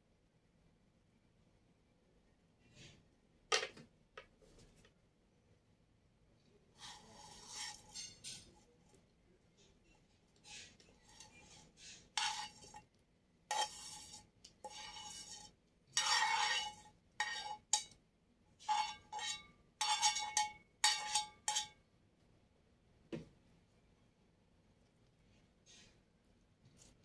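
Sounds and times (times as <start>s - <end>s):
utensil scraping a frying pan: 6.8s - 9.0s, 9.8s - 18.0s, 18.6s - 21.8s, 25.7s - 26.0s.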